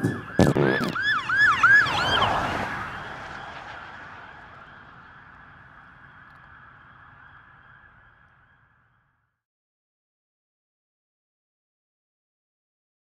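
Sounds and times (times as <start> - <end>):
siren yelping: 0.0 - 8.2.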